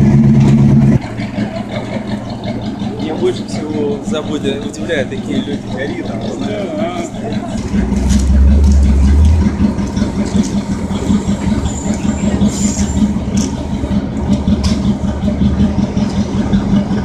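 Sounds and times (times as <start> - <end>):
fire truck engine running: 0.0 - 17.0.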